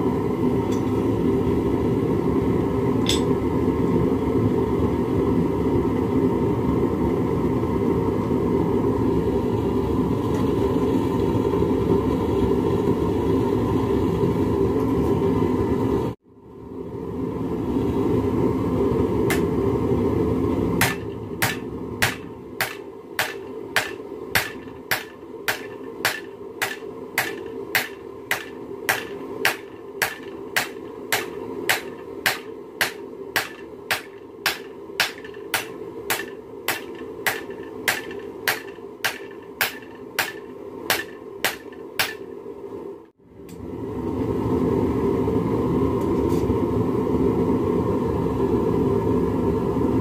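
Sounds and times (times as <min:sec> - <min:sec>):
hammer clanging on anvil: 0:03.1 - 0:03.4, 0:20.8 - 0:42.3.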